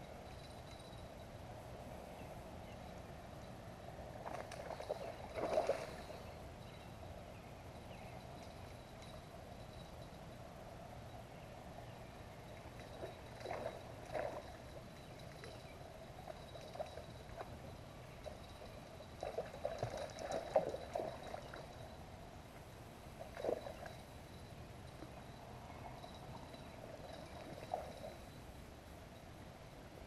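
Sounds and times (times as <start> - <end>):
landing net in water: 4.1 - 6.4, 12.4 - 22.0, 23.1 - 28.5.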